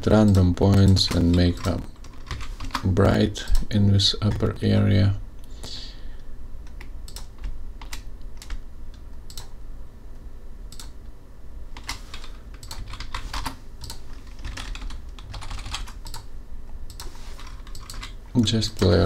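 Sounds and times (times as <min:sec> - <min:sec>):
low steady hum: 0:00.0 - 0:19.0
keyboard and mouse clicking: 0:06.7 - 0:09.5, 0:10.7 - 0:11.0, 0:11.8 - 0:16.3, 0:16.9 - 0:18.2.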